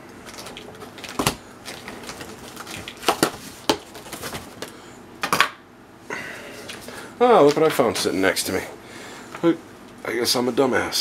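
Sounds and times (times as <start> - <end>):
cardboard boxes rustling: 0.3 - 4.8.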